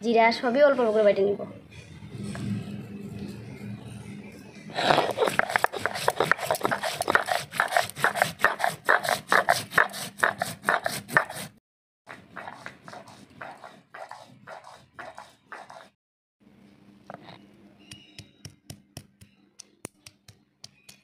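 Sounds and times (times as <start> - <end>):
stone roller grinding seeds: 4.9 - 11.5.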